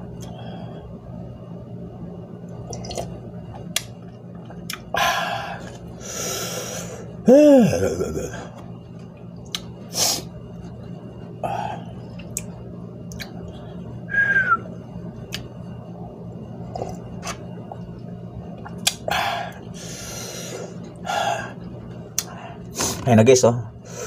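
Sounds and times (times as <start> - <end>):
person chewing: 2.7 - 4.9, 16.6 - 17.9, 18.6 - 19.1
hissing breath: 5.0 - 7.1, 19.1 - 21.6.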